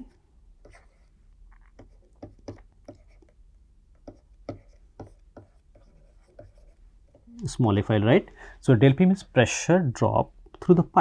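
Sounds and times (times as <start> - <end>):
stylus tapping and scratching: 0.6 - 7.4.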